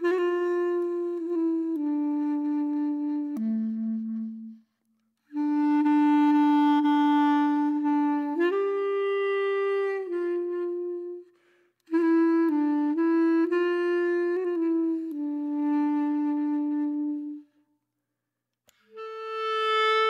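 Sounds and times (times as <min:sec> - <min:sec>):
slow woodwind melody: 0:00.0 - 0:17.7, 0:18.7 - 0:20.0.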